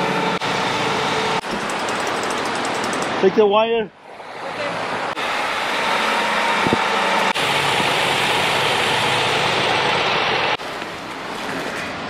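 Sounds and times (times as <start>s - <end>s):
diesel truck engine running: 4.8s - 12.0s.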